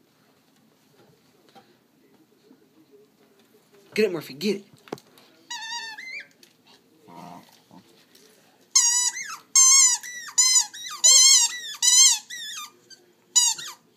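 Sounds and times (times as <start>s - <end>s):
rubber toy squeaking: 5.5s - 6.4s, 8.8s - 13.8s.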